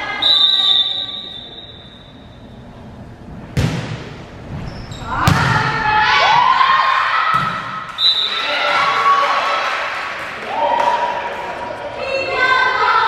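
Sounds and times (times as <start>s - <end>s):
volleyball being hit: 3.6s - 4.2s, 5.2s - 5.8s, 7.3s - 7.9s.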